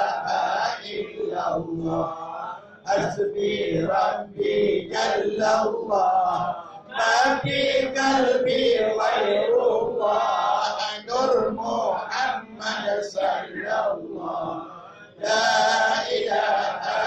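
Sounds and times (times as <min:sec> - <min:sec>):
men chanting devotional verses: 0:00.0 - 0:17.0.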